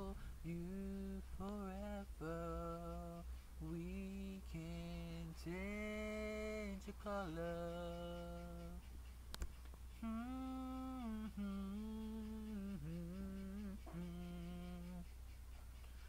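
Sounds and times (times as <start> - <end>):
person humming a melody: 0.0 - 8.9, 9.9 - 15.2
steady low hum: 0.0 - 16.0
sharp click: 5.4 - 10.1, 10.7 - 16.0.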